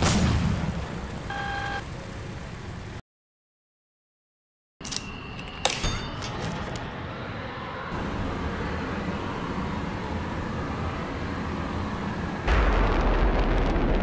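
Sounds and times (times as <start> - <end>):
jet engine rushing: 6.5 - 14.0.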